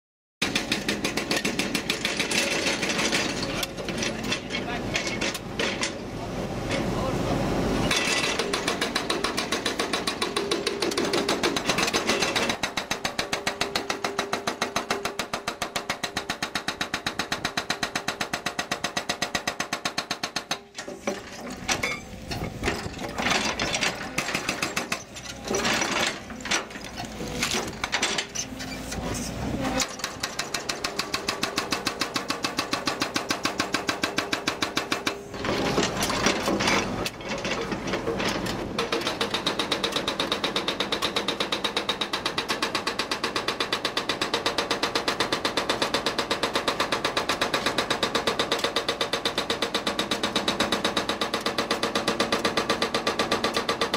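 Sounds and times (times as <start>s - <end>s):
hydraulic breaker hammering rock: 0.4s - 6.9s, 7.8s - 53.9s
diesel engine running: 2.8s - 13.7s.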